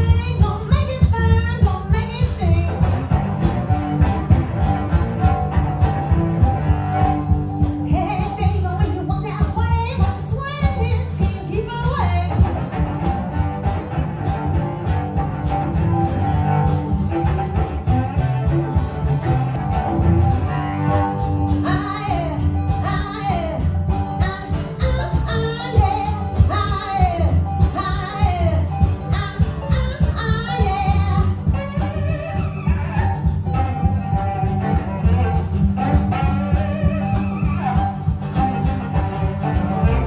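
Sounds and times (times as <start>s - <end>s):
woman singing: 0.0s - 3.2s, 7.6s - 12.5s, 21.5s - 34.0s
acoustic guitar: 0.0s - 40.0s
bowed cello: 0.0s - 40.0s
mandolin: 0.0s - 40.0s
plucked upright bass: 0.0s - 40.0s.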